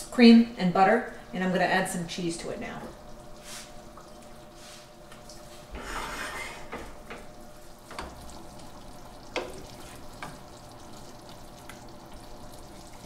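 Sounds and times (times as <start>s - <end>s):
spoon scraping pan: 5.8s - 6.9s.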